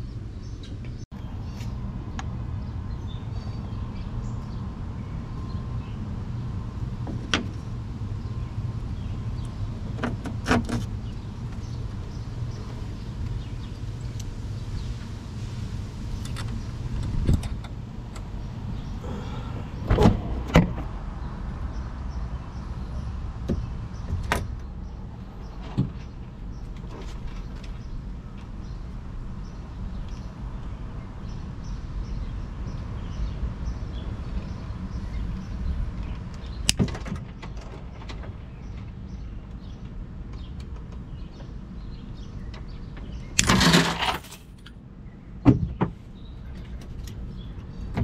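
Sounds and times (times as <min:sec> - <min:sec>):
steady low rumble: 0:10.9 - 0:25.5.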